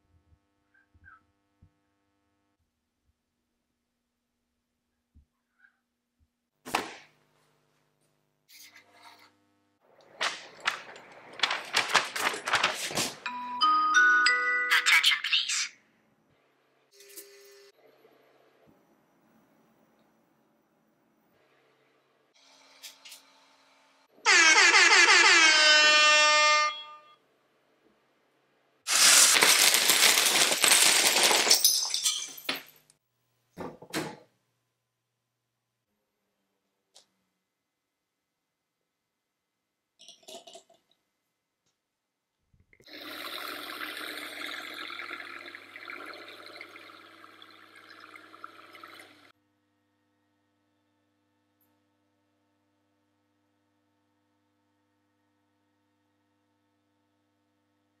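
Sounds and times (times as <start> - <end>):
pages flipping with clicks: 10.0 - 13.3, 28.9 - 31.6
paper rustling: 10.1 - 13.3, 28.9 - 31.7
paper booklet swish: 10.2 - 13.2
plastic bricks clattering onto surface: 28.9 - 32.7.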